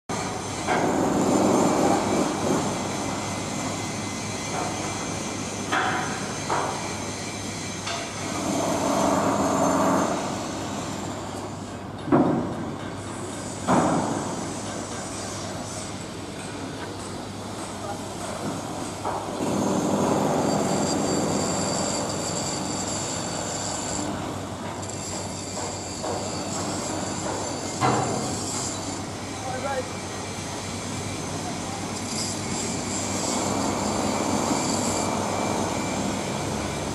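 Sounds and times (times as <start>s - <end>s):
high-pitched whine: 24.8s - 36.9s.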